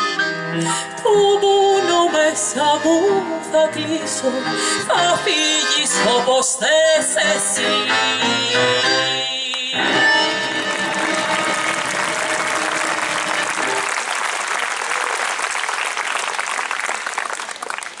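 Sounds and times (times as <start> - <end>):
audience applauding: 10.2 - 18.0.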